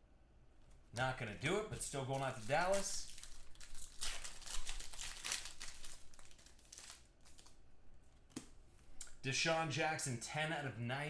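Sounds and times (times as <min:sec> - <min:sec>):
wrapper crinkling and rustling: 0:01.0 - 0:07.6.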